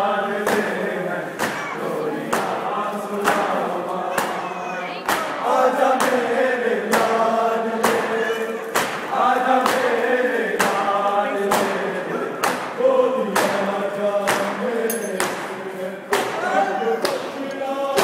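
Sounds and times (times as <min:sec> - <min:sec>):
men chanting in unison: 0:00.0 - 0:18.0
chest beating slaps: 0:08.8 - 0:09.9, 0:12.4 - 0:12.8.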